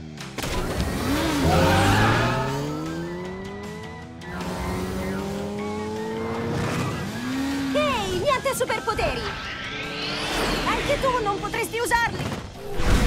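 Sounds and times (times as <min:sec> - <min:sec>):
background music: 0:00.0 - 0:13.0
cartoon engine revving: 0:00.8 - 0:03.6, 0:04.2 - 0:08.2.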